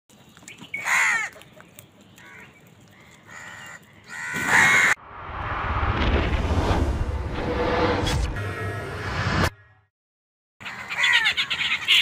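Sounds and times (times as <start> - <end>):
crows cawing harshly: 0.8 - 1.4, 2.2 - 5.0, 10.6 - 12.0
rising whoosh sound effect: 5.0 - 9.6.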